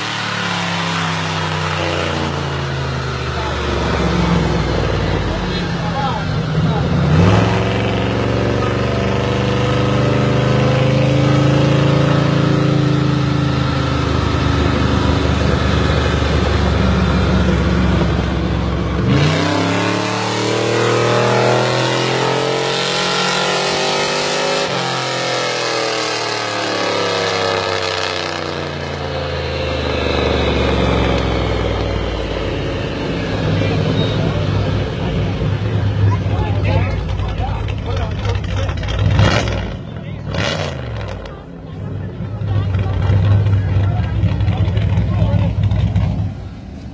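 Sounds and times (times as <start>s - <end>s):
car engine revving: 0.0s - 46.9s.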